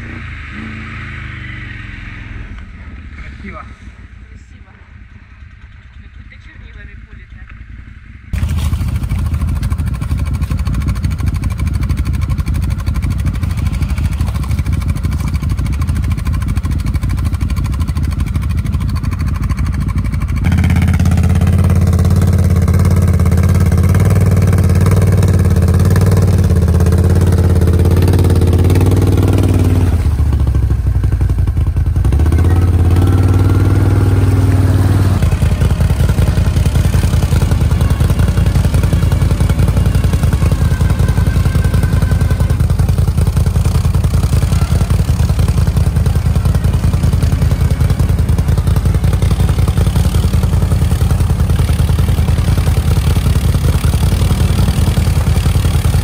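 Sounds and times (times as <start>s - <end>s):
vehicle engine running hard: 0.0s - 6.5s, 8.3s - 56.0s.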